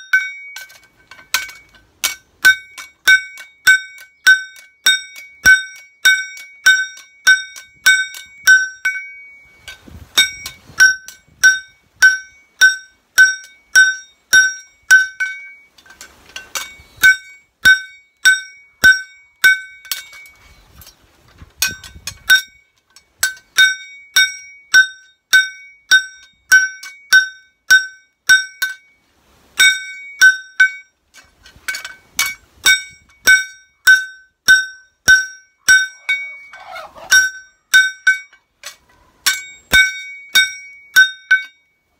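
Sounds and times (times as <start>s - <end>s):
hammer ringing on knife blade: 0.0s - 15.7s, 31.8s - 38.4s, 39.2s - 41.7s.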